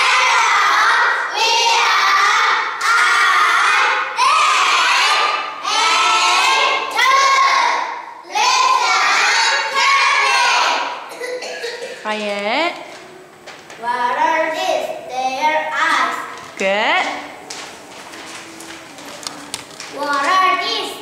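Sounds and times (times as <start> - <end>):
children singing in unison: 0.0 - 7.7, 8.3 - 10.9.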